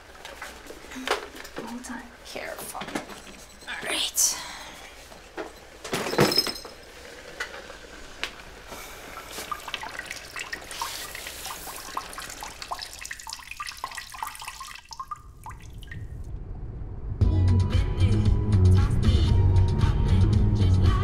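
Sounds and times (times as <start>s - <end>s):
urine stream into toilet water: 7.1s - 16.2s.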